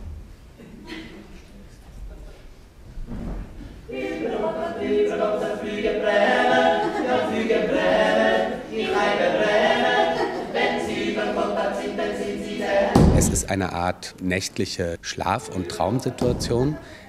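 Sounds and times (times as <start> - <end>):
group singing unaccompanied: 3.8 - 13.6, 15.2 - 16.8.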